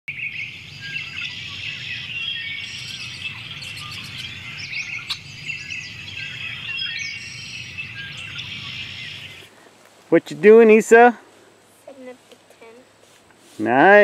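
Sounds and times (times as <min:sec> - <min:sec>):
birds chirping and calling: 0:00.1 - 0:09.7.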